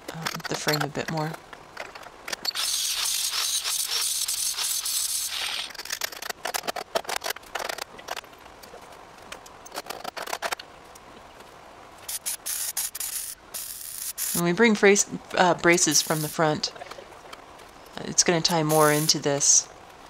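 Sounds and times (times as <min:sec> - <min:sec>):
loud crackling hiss: 0:12.1 - 0:14.4, 0:15.8 - 0:16.4, 0:18.5 - 0:19.6.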